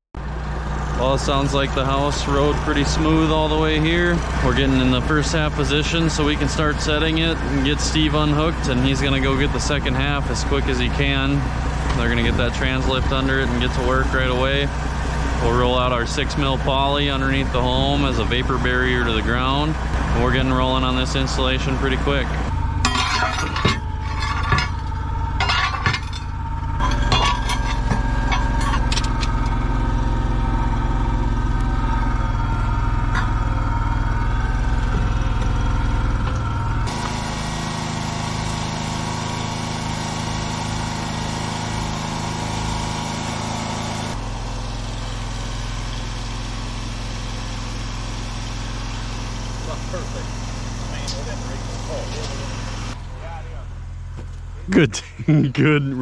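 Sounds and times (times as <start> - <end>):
engine running: 0.0 - 56.0
metal clanking and clinking: 22.8 - 29.7, 33.0 - 33.6.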